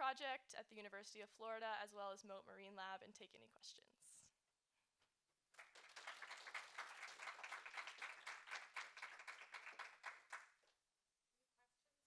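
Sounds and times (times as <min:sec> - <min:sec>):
audience applauding: 0:05.6 - 0:10.6.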